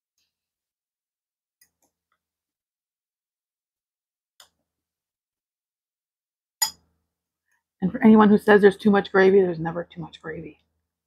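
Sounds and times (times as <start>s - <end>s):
spoon clicking on glass bowl: 6.6s - 6.8s.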